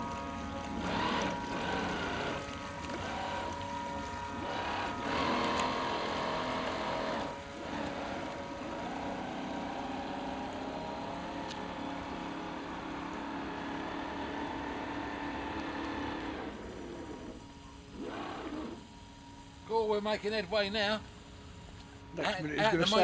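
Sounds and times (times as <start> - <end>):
water wash hissing: 0.0 - 18.9
model boat motor whining: 0.0 - 19.6.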